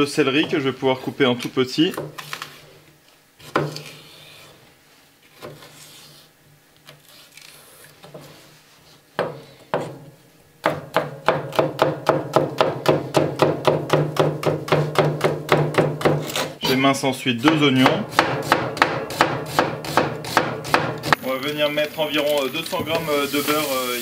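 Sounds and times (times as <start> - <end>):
knife chopping on plastic board: 3.4 - 4.0, 5.3 - 5.8, 9.2 - 16.6, 17.4 - 21.2.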